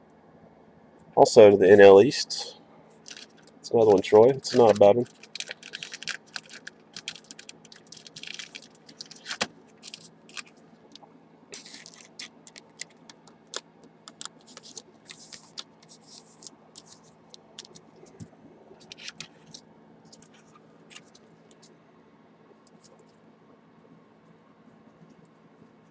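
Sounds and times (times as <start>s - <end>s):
plastic card holders clicking and scraping: 3.9s - 7.5s.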